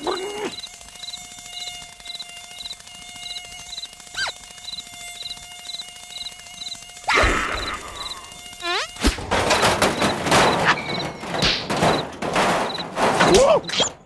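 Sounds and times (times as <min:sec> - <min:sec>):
cartoon mosquito buzzing: 0:00.0 - 0:12.0.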